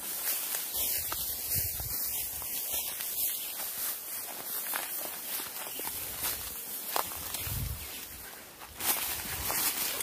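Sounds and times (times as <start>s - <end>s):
footsteps through tall grass: 0.0s - 10.0s
leaves rustling: 0.0s - 10.0s.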